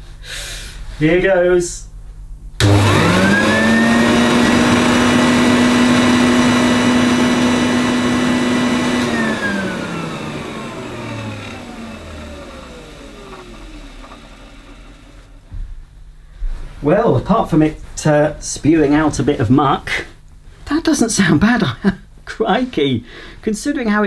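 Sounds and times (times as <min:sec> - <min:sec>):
vacuum cleaner motor whine: 0:02.6 - 0:15.4.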